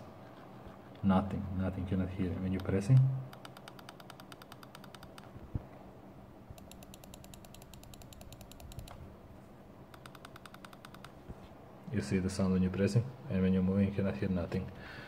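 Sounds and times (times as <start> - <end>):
mouse scroll wheel ticking: 3.3 - 5.3, 6.6 - 9.0, 9.9 - 11.2.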